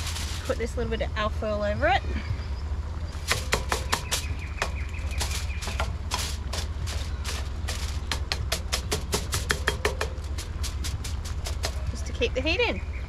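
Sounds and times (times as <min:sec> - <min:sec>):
aluminium foil crinkling: 0:00.0 - 0:00.8, 0:03.2 - 0:12.0.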